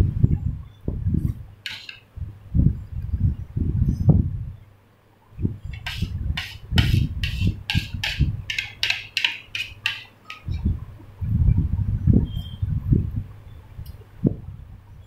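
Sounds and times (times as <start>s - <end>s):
metal spoon scraping a plate: 1.6s - 2.0s, 5.7s - 10.6s.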